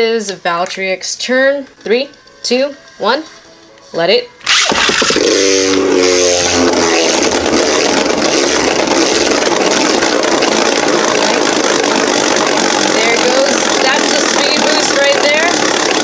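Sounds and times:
humming tone: 4.4 - 16.0
spinning top whirring rattle: 4.5 - 16.0.

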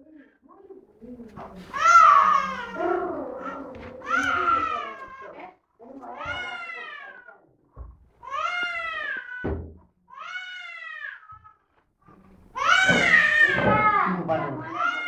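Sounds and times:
baby whining cries: 1.7 - 5.4, 8.2 - 9.5.

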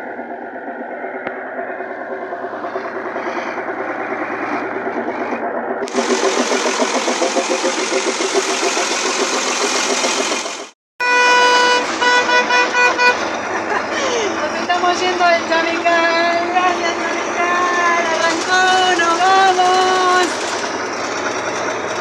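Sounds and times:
diesel engine clattering: 0.0 - 22.0
bus horn tooting: 11.0 - 13.4.

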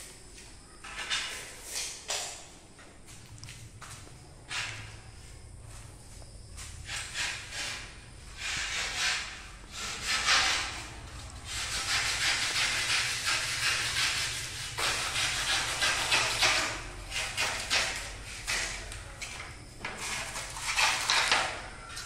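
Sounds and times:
blade rasping on cornice strip: 11.5 - 18.9.

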